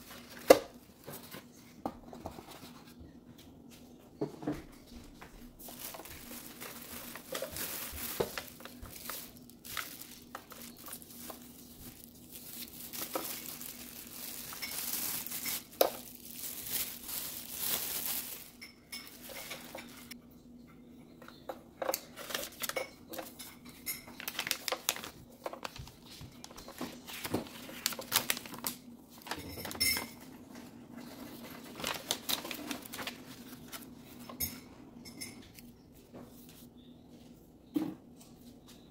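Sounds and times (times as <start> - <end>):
paper leaflets shuffling: 5.6 - 20.2, 24.2 - 29.4, 31.0 - 34.3
plastic bag crinkling: 5.6 - 20.2, 24.1 - 30.0, 31.0 - 34.4.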